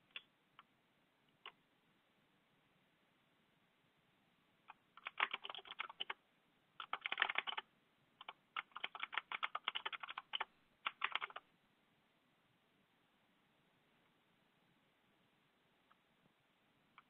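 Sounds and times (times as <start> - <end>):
typing on keyboard: 4.7 - 6.2, 6.8 - 11.4.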